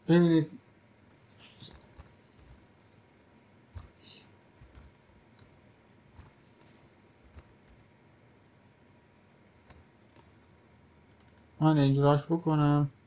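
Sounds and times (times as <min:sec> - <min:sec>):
keyboard keystrokes: 0:01.6 - 0:02.6, 0:03.7 - 0:04.0, 0:04.6 - 0:07.9, 0:09.6 - 0:10.4, 0:11.1 - 0:11.5.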